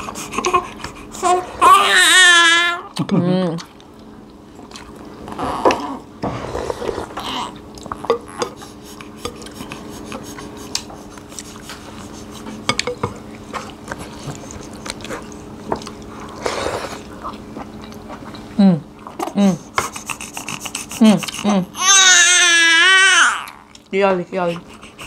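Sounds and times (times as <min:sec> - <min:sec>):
small eating clicks: 0:07.2 - 0:16.4, 0:23.4 - 0:25.0.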